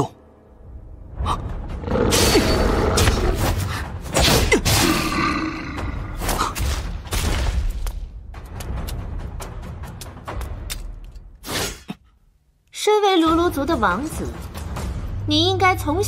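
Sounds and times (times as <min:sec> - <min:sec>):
monster roaring and growling: 0:01.7 - 0:03.6, 0:04.8 - 0:06.2.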